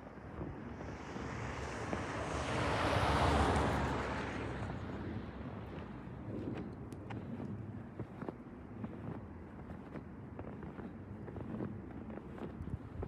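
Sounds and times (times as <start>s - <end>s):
wind buffeting microphone: 3.6s - 13.0s.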